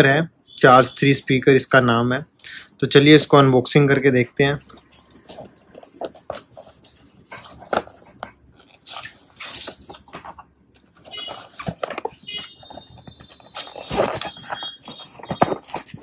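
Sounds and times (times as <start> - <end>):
cardboard box rustling and scraping: 4.6 - 10.4, 11.0 - 16.0.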